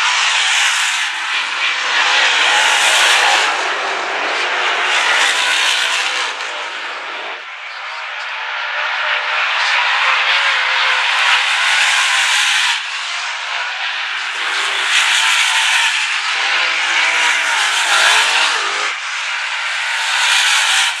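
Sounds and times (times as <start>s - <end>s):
race car engines passing: 0.0s - 21.0s.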